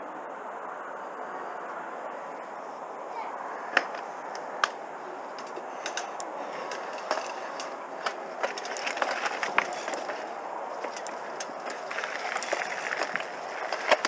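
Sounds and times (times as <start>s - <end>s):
rush of tyres and air: 0.0s - 14.0s
bike clicking and knocking: 3.7s - 14.0s.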